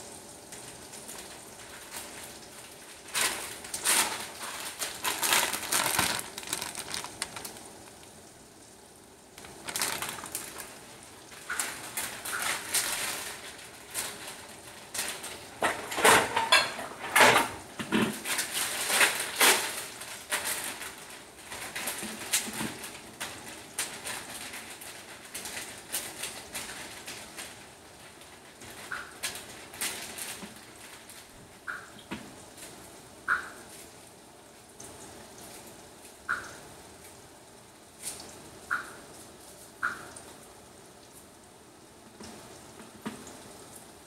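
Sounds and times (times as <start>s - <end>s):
plastic bag crinkling: 1.0s - 8.4s, 9.4s - 16.8s, 18.0s - 31.6s.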